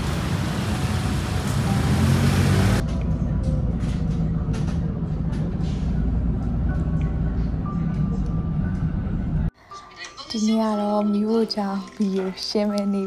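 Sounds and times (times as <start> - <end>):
vehicle low rumble: 0.0 - 9.5.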